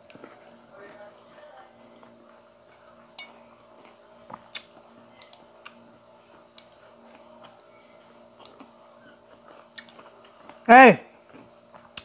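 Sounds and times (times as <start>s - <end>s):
faint steady hum: 0.0s - 12.0s
chewing mouth sounds: 3.8s - 5.8s, 9.3s - 10.6s.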